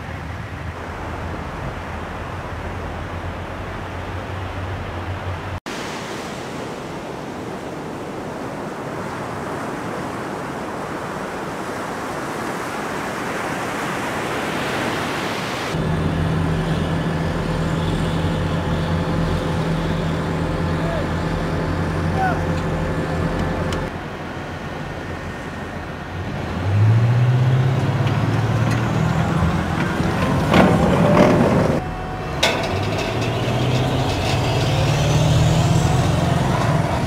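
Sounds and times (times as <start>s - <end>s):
surf breaking on a beach: 0.0s - 37.0s
tracked vehicle engine idling: 15.8s - 37.0s.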